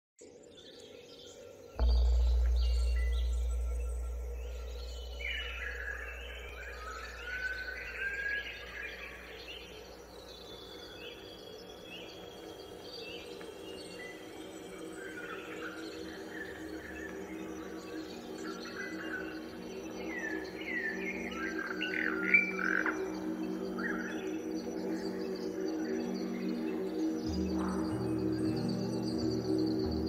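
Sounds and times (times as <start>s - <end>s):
insect sounds: 0.4s - 30.0s
deep bass note: 1.8s - 8.1s
steady low tones: 1.8s - 10.1s.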